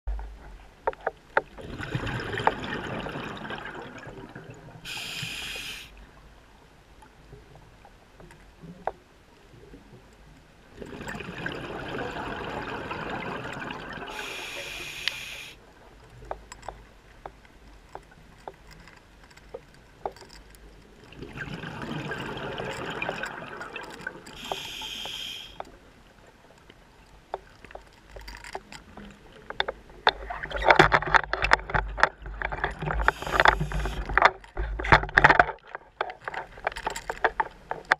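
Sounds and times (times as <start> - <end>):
short higher hiss: 4.9 - 6.0, 14.1 - 15.6, 24.4 - 25.6, 33.0 - 34.0
small clicks: 14.2 - 21.3.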